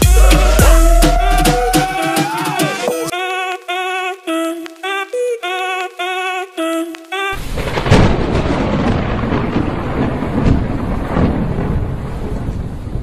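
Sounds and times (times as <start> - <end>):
heavy rain: 6.9 - 13.0
thunder rumbling: 7.4 - 13.0.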